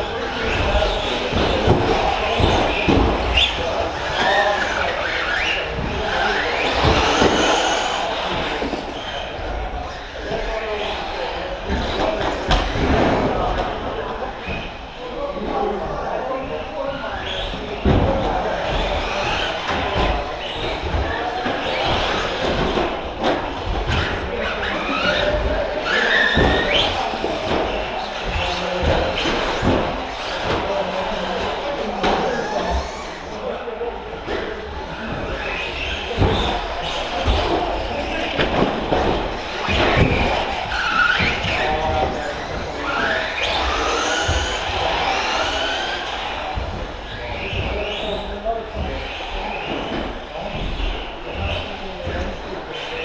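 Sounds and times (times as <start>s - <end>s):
rc car electric motors whining: 1.0s - 9.4s, 39.3s - 48.3s.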